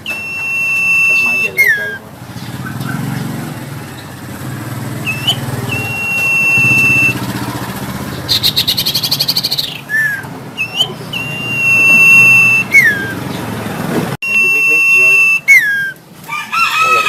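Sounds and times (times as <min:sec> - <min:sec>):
bird whistling and trilling: 0:00.0 - 0:03.2, 0:05.0 - 0:13.4, 0:14.2 - 0:16.0
low engine-like hum: 0:00.1 - 0:14.2.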